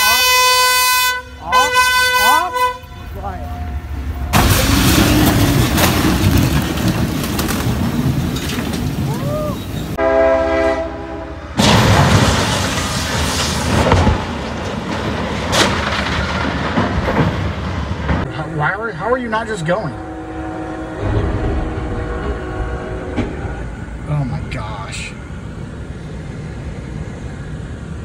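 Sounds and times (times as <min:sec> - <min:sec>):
train air horn chord: 0:00.0 - 0:03.2, 0:10.0 - 0:11.5, 0:18.3 - 0:23.7
loud harsh crash: 0:04.3 - 0:08.8, 0:11.6 - 0:18.3, 0:21.0 - 0:23.8
sharp bang: 0:20.9 - 0:23.8
loud rushing noise: 0:20.9 - 0:28.0.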